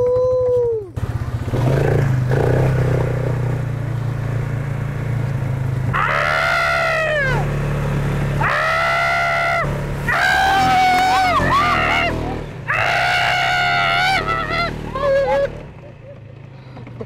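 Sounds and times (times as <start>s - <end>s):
atv engine running: 0.0s - 17.0s
rider whooping shouts: 5.9s - 7.5s, 8.4s - 15.6s.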